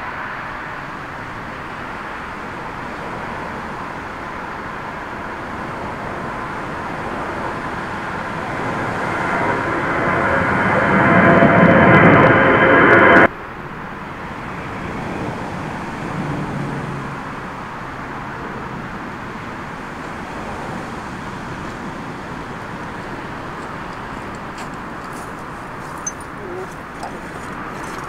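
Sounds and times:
distant jet engine rushing: 0.0s - 13.3s.

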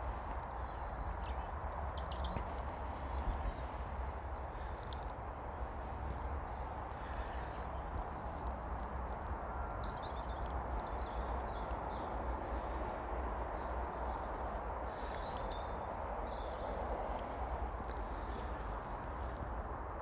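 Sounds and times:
small birds chirping: 0.0s - 19.6s.

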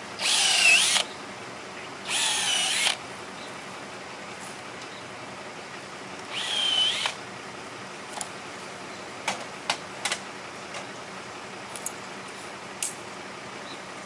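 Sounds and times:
cordless drill whine: 0.2s - 1.1s, 2.1s - 3.0s, 6.3s - 7.2s.

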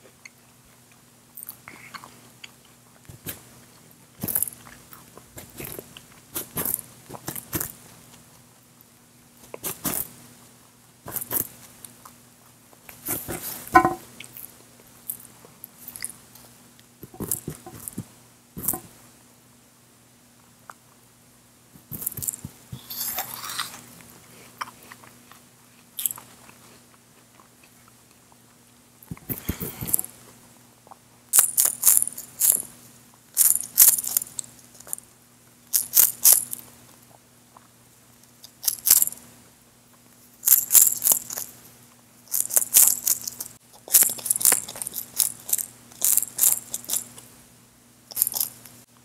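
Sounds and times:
faint steady hum: 0.0s - 49.0s
crisp food crunching: 24.6s - 28.2s, 42.3s - 47.3s, 48.1s - 48.7s.

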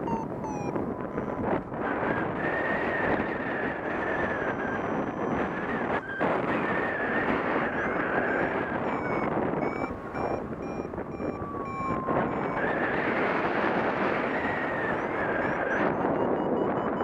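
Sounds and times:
wavering high tone: 0.0s - 1.4s, 7.8s - 12.9s, 14.9s - 17.0s
wind buffeting microphone: 0.0s - 17.0s.

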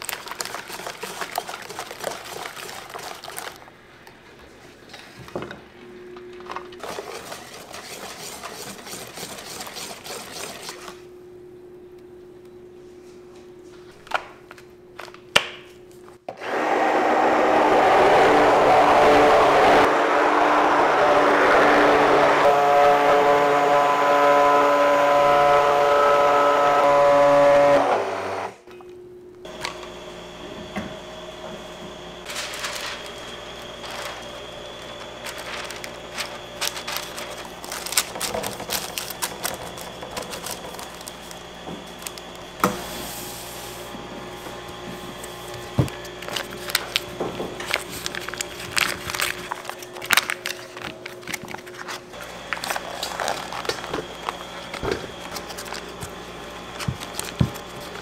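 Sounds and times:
machine running loudly: 16.5s - 28.6s, 29.5s - 43.2s
steady hum: 22.2s - 58.0s.

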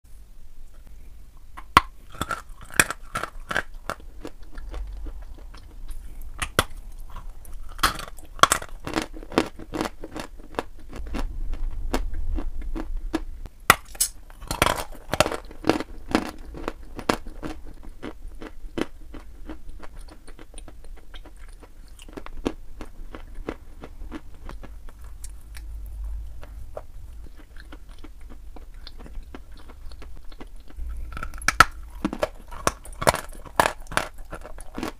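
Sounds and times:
chalk being chewed with crunches: 14.4s - 34.9s.

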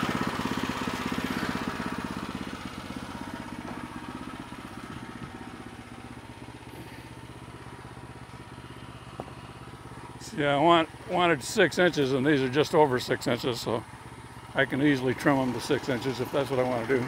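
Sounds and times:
small gasoline engine running: 0.0s - 17.0s.

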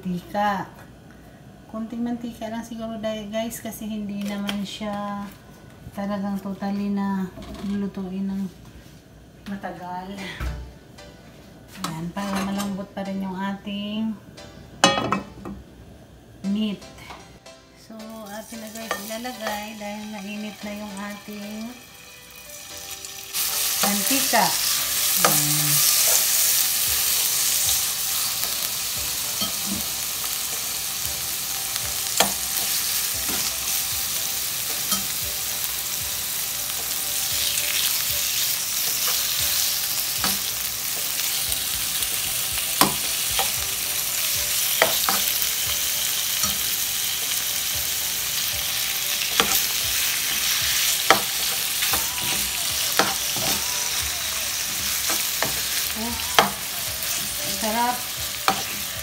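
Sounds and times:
meat sizzling in hot oil: 18.3s - 59.0s.

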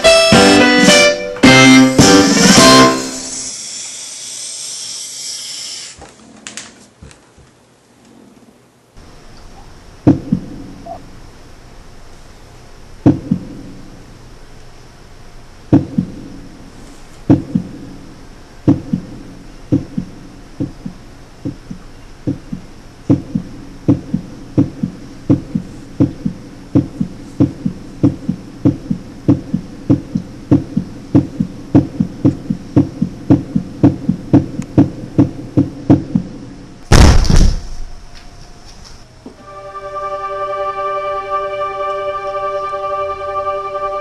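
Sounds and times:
heartbeat thumps: 10.0s - 11.0s, 13.0s - 13.8s, 15.7s - 16.4s, 17.2s - 18.0s, 18.6s - 37.2s
loud crash: 36.9s - 38.1s.

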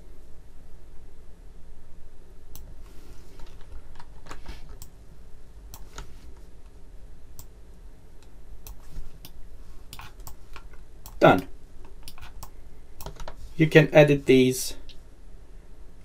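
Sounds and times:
steady low hum: 0.0s - 16.0s
keyboard and mouse clicks: 3.4s - 5.0s, 5.7s - 6.1s, 8.2s - 13.4s.

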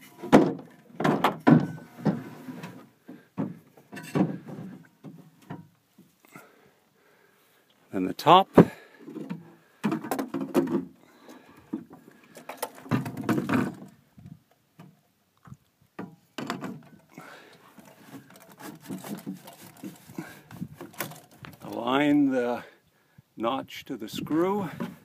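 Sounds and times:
tube sections knocking and rubbing: 17.8s - 21.5s.

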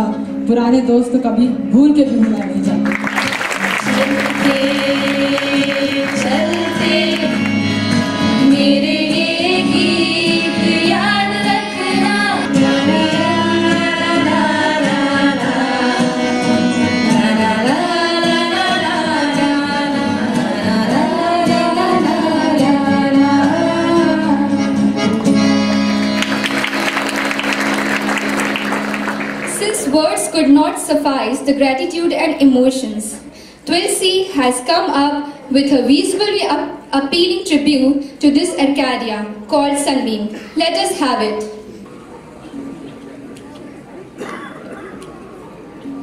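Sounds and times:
person singing: 3.6s - 25.2s
instrumental backing with drone: 3.9s - 18.1s, 23.1s - 30.0s.

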